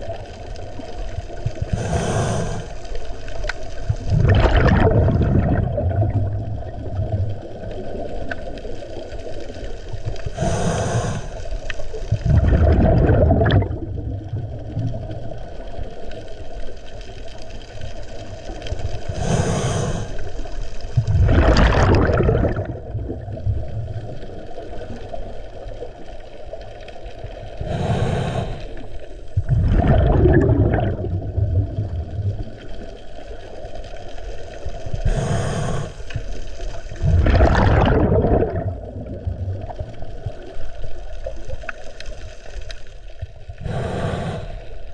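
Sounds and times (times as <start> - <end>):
burble of exhaled bubbles: 0.0 - 44.9
regulator hiss on inhale: 1.6 - 3.2, 10.2 - 11.9, 19.1 - 20.6, 27.5 - 29.2, 34.9 - 36.4, 43.6 - 44.9.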